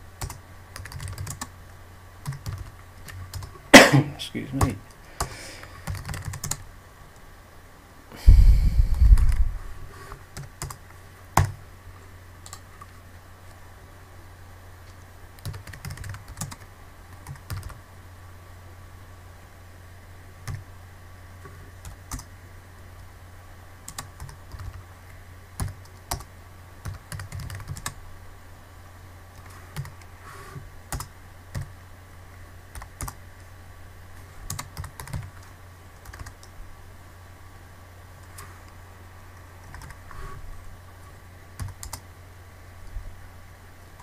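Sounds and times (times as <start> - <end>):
steady low hum: 0.0 - 44.0
keyboard typing: 0.2 - 1.5, 2.2 - 3.6, 4.6 - 6.6, 10.4 - 10.8, 11.4 - 11.6, 14.9 - 17.8, 20.4 - 20.6, 21.8 - 22.3, 23.9 - 24.8, 25.6 - 28.0, 29.4 - 30.0, 30.9 - 31.7, 32.7 - 33.2, 34.5 - 36.5, 39.6 - 40.1, 41.6 - 42.0.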